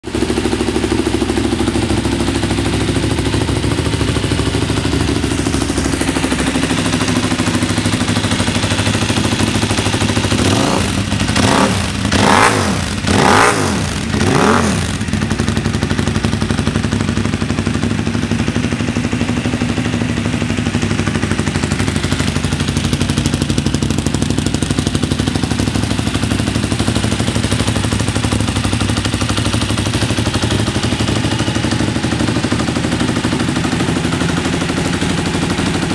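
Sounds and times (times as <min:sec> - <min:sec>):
motorcycle engine idling: 0:00.0 - 0:35.9
engine revving blips: 0:10.4 - 0:15.0.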